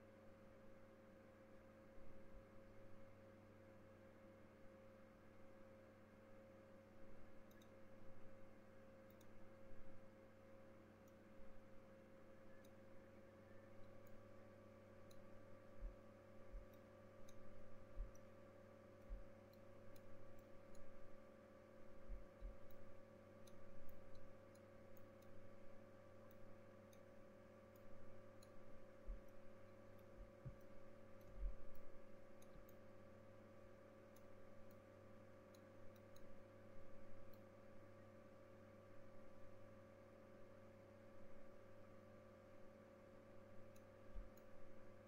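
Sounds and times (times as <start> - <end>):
faint electrical hum: 0.0 - 45.0
small clicks: 7.2 - 8.3, 9.0 - 9.6, 12.5 - 12.9, 13.7 - 38.1, 43.4 - 45.0.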